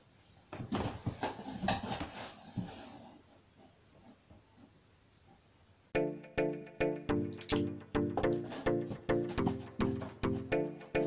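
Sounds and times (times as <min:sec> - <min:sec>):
music with plucked strings: 0:06.0 - 0:11.0.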